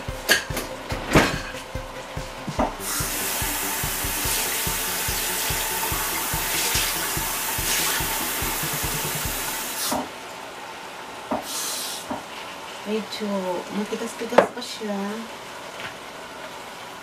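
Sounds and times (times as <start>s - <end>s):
water running from a tap: 2.8s - 10.1s.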